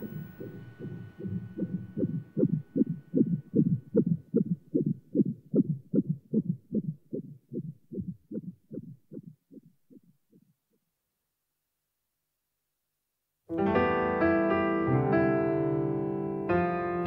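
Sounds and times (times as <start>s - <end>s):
fetal heartbeat on doppler monitor: 0.0s - 10.6s.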